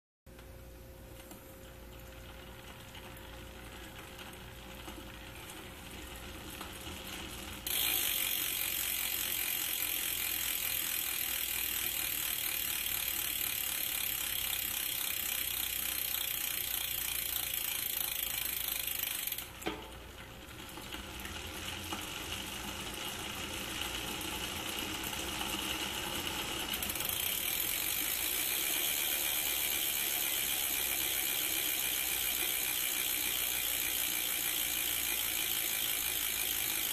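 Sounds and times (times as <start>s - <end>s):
bike hub ratcheting buzz: 7.4s - 19.7s, 21.3s - 36.9s.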